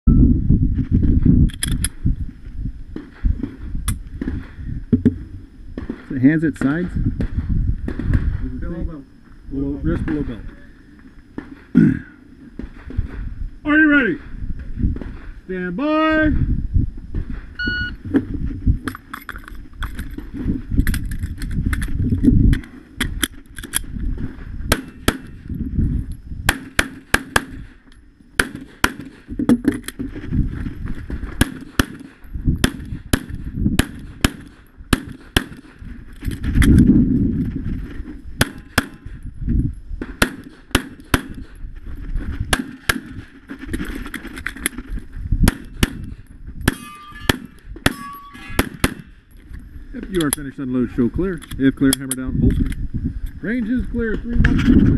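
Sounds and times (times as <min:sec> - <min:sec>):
pistol shots: 0:24.7 - 0:25.4, 0:26.5 - 0:27.7, 0:28.4 - 0:29.3, 0:31.4 - 0:35.8, 0:40.2 - 0:41.5, 0:45.4 - 0:46.1, 0:46.7 - 0:49.2.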